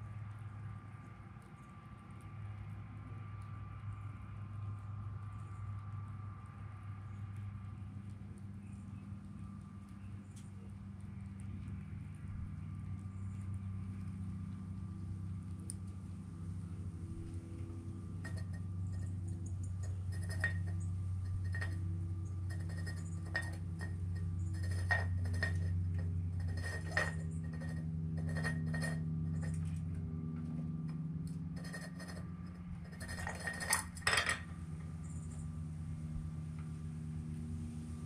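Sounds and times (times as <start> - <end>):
steady low hum: 0.0 - 38.0
cups clinking on a table: 33.1 - 34.4.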